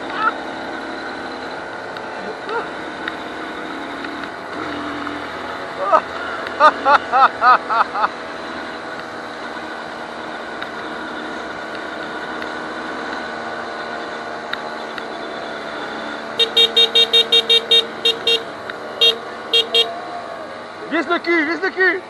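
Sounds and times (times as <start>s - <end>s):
small motorcycle engine running: 0.0s - 22.0s
wind: 0.0s - 22.0s
motorcycle horn beeping: 16.4s - 20.0s.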